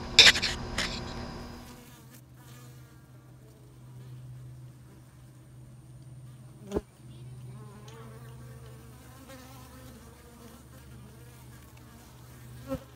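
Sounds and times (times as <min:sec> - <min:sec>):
sharp click: 0:00.0 - 0:01.3
honey bees buzzing: 0:00.0 - 0:12.9.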